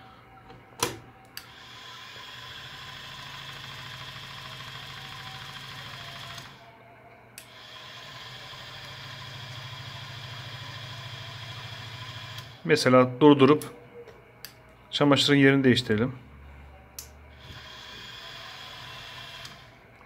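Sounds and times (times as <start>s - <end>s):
toy washing machine motor humming: 1.4s - 6.6s, 7.4s - 12.6s, 17.3s - 19.8s.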